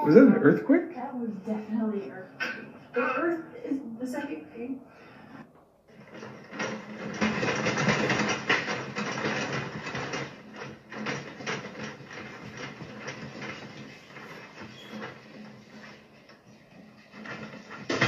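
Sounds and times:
objects rattling and clattering: 5.9 - 18.0.

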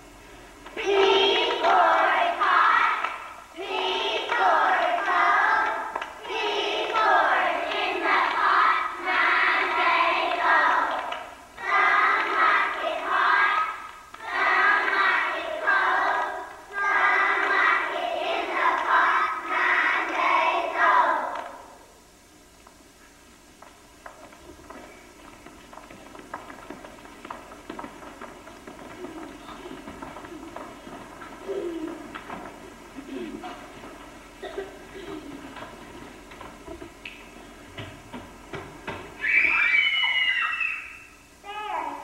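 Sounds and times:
children singing in chorus: 0.8 - 21.5.

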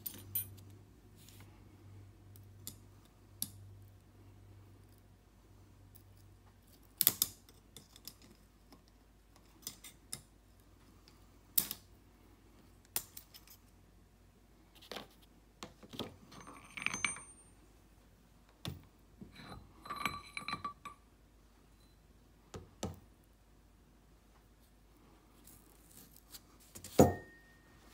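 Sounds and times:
metal ringing: 27.0 - 27.7.

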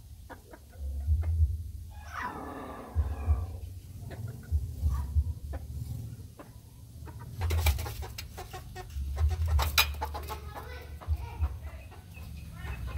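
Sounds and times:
chicken clucking: 0.2 - 1.5, 2.9 - 12.9
low rumble: 0.7 - 7.6.

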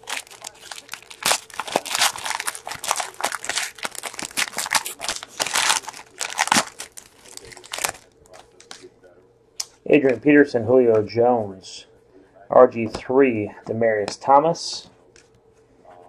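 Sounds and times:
wrapper tearing and crinkling: 0.0 - 8.1.

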